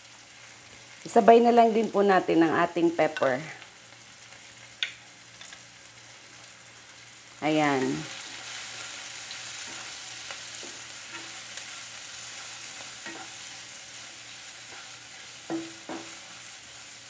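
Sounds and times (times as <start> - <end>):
vegetables sizzling in oil: 0.0 - 17.0
spatula scraping and tapping pan: 9.6 - 11.7, 12.4 - 13.6, 14.6 - 16.4.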